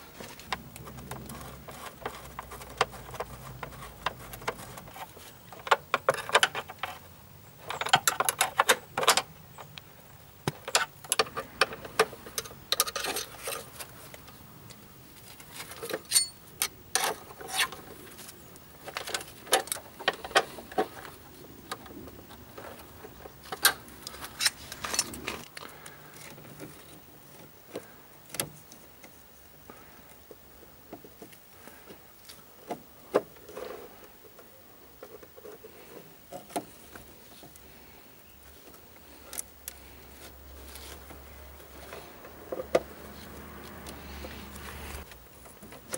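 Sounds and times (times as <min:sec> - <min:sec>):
hand tools clinking on metal: 0:15.9 - 0:16.4.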